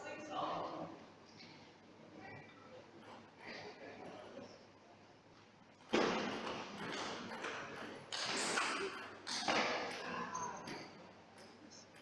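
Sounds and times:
table tennis ball hits: 0:05.9 - 0:10.0.

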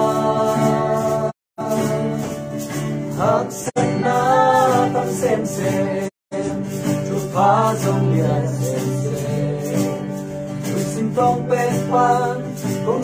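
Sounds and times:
group singing a hymn: 0:00.0 - 0:02.4, 0:03.1 - 0:06.1, 0:07.0 - 0:10.2
acoustic guitar: 0:00.0 - 0:13.0.

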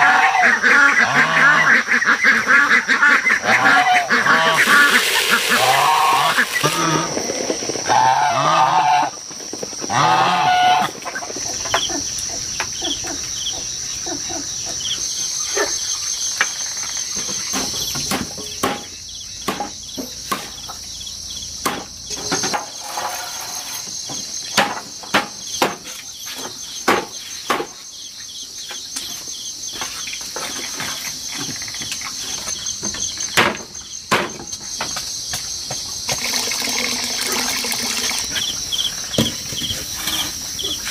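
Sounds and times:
poultry calling: 0:00.0 - 0:07.2, 0:07.8 - 0:09.2, 0:09.9 - 0:15.0
high-pitched insect drone: 0:04.3 - 0:10.7.

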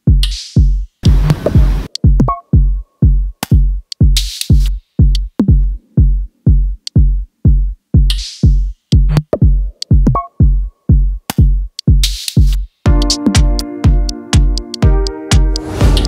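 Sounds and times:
deep kick drum: 0:00.0 - 0:16.0
electronic music: 0:01.0 - 0:05.3, 0:12.0 - 0:16.0
percussive clicks: 0:03.4 - 0:03.6.

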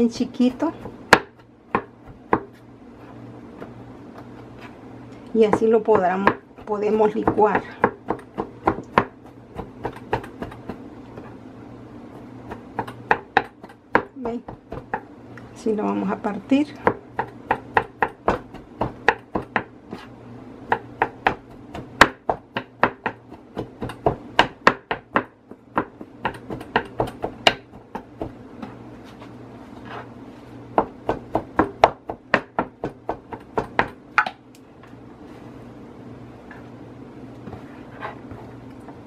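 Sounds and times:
knife chopping on wooden board: 0:00.6 - 0:02.6, 0:05.4 - 0:11.3, 0:12.2 - 0:15.0, 0:16.8 - 0:20.1, 0:20.7 - 0:28.7, 0:30.7 - 0:34.4.

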